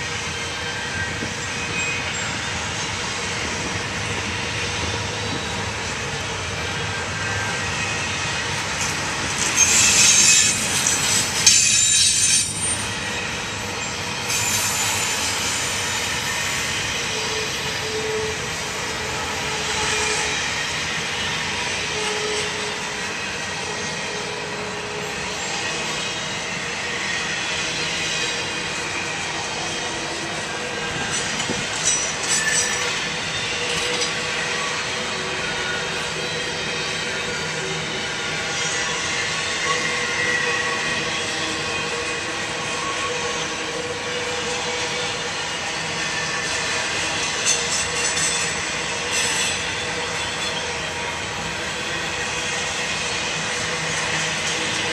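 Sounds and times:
train wheels roaring on rail: 0.0 - 54.9.

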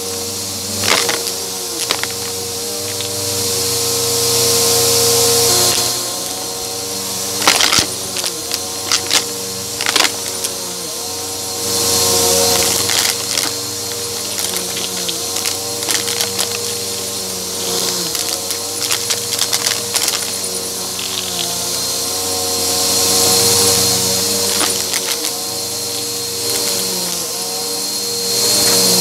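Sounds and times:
debris rattling in vacuum: 0.0 - 29.0
vacuum cleaner running: 0.0 - 29.0
coins and pebbles clacking: 0.7 - 3.3, 5.4 - 6.5, 7.3 - 10.8, 12.0 - 21.9, 23.4 - 27.3.

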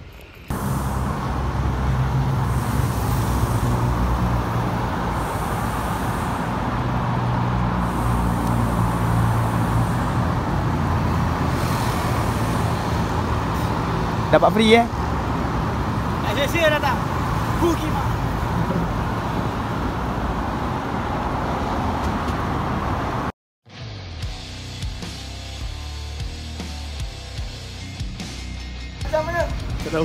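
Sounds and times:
road traffic noise: 0.0 - 23.4
vehicle engine running: 0.5 - 20.1.

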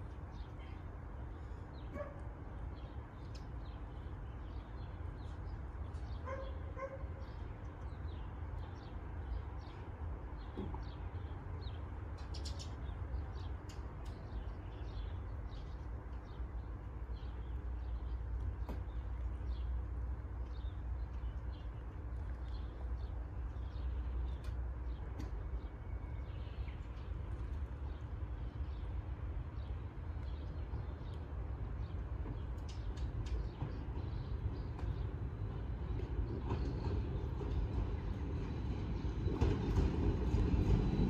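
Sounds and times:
small birds chirping: 0.0 - 41.0
dog barking: 1.9 - 2.2, 6.2 - 7.1.

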